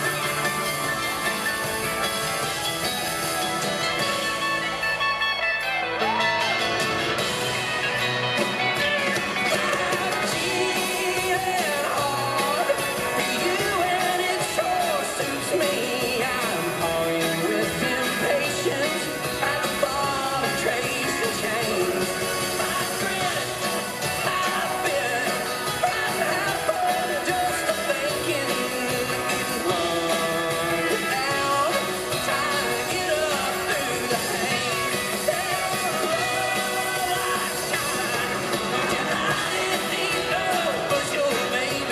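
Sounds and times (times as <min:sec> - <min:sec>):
live country-rock band playing: 0:00.0 - 0:41.9
man singing into microphone: 0:09.4 - 0:41.9.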